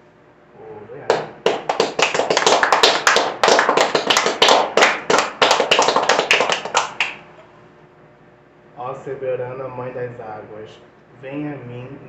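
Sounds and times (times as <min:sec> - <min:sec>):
fast hand clapping: 0:01.1 - 0:07.2.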